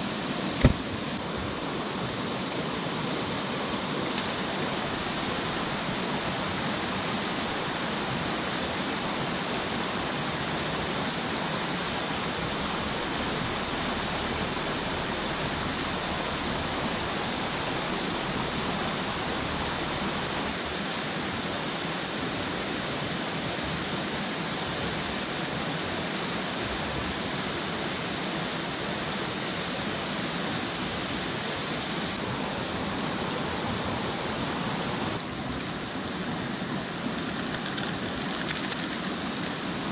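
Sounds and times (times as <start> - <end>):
rocky stream rushing: 0.0 - 39.9.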